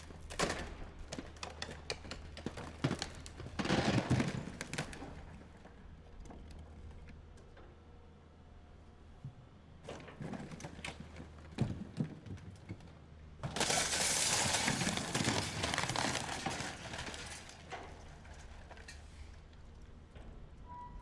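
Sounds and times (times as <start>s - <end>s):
wood and brick cracking: 0.0s - 7.1s, 9.9s - 19.0s
debris crashing down: 13.4s - 18.7s.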